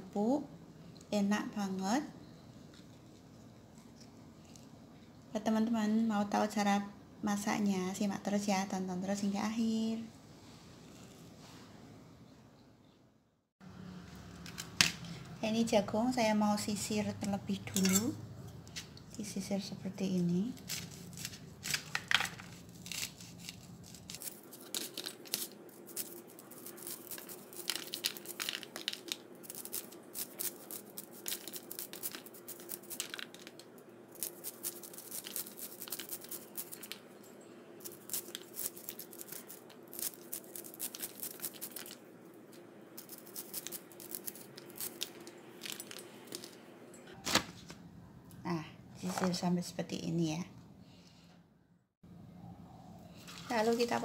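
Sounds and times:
knife cutting corn kernels: 20.6s - 37.0s, 43.0s - 45.8s.

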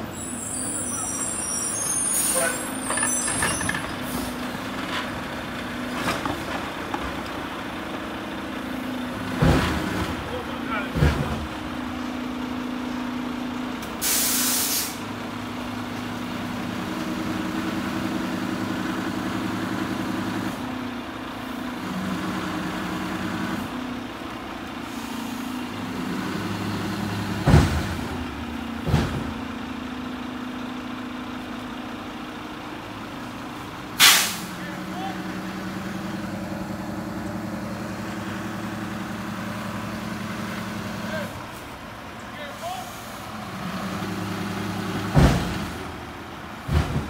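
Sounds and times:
garbage truck engine and hydraulics: 0.0s - 47.0s
air hiss: 14.0s - 15.0s, 34.0s - 34.6s.

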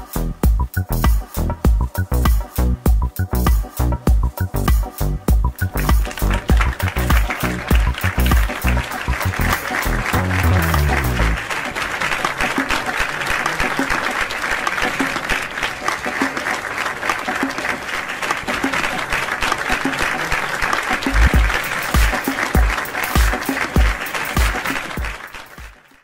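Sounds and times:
music with heavy bass beat: 0.0s - 11.4s, 21.1s - 25.2s
audience applauding: 5.6s - 26.0s.

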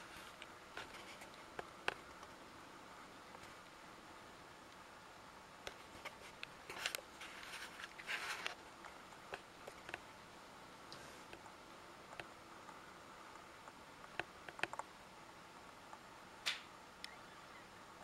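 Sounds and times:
faint background hiss: 0.0s - 18.0s
scratchy rustling: 5.8s - 8.6s
small clicks: 13.6s - 14.9s.

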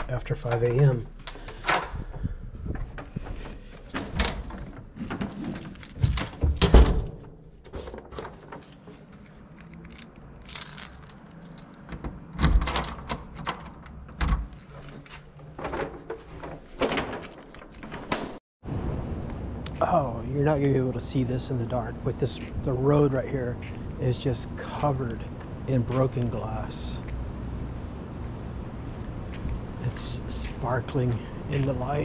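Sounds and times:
keys jangling: 5.4s - 6.9s, 8.2s - 15.3s, 16.4s - 18.2s
clicks and knocks of handling: 7.6s - 18.4s.

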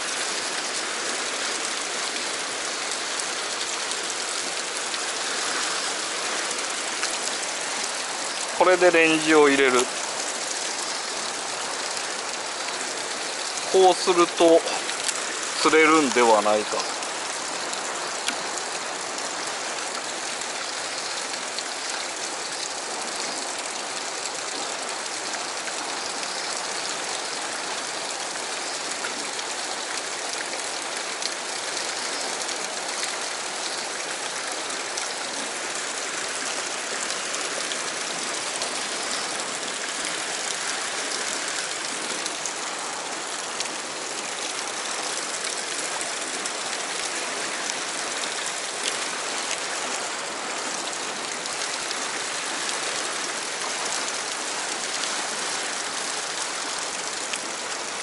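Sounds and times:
water rushing over rocks: 0.0s - 58.0s.

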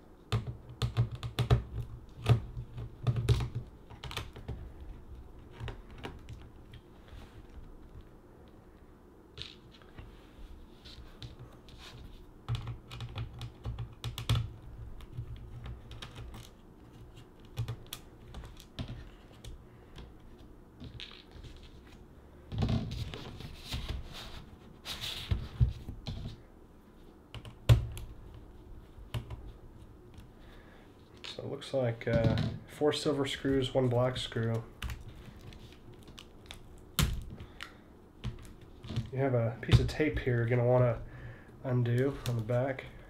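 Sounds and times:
rustling and scraping: 4.4s - 12.4s, 18.1s - 27.2s.

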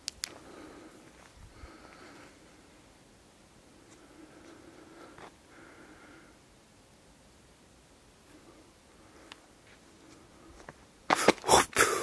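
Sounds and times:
faint steady tones: 0.0s - 11.1s.

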